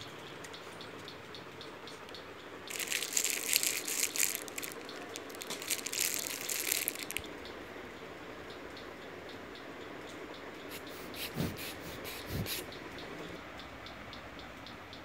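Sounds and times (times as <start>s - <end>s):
plastic bag crinkling: 2.7s - 7.3s.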